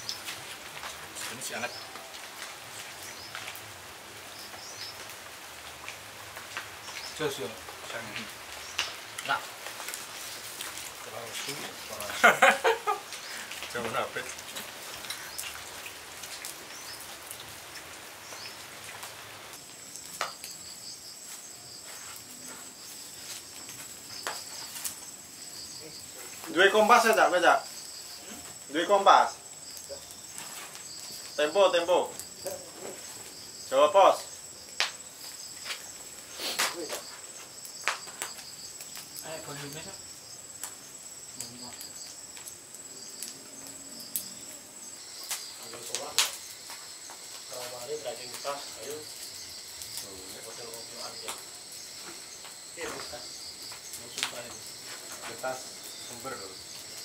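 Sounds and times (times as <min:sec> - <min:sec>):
dense crackly patter: 0:00.0 - 0:20.5, 0:21.2 - 0:57.0
insects trilling: 0:00.0 - 0:57.0
sharp cracks: 0:34.6 - 0:35.0, 0:35.6 - 0:39.2, 0:45.2 - 0:47.2.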